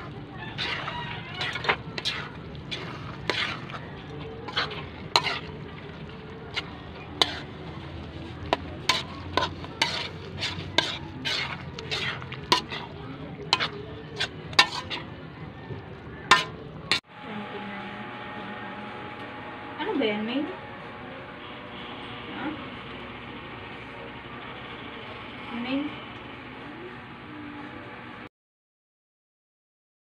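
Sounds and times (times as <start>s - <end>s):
metal spatula scraping a wok: 0.0s - 15.2s, 16.2s - 17.0s
food sizzling: 0.0s - 28.3s.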